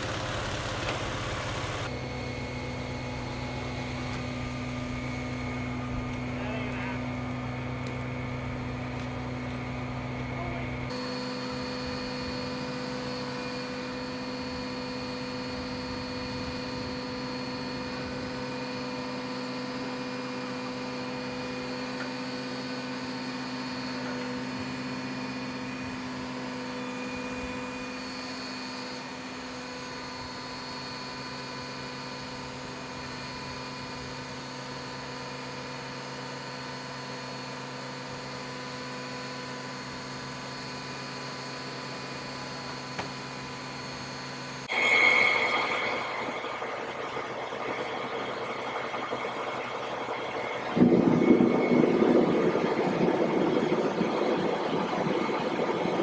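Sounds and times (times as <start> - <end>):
fire truck engine drone: 0.0 - 56.0
hydraulic whining: 44.6 - 56.0.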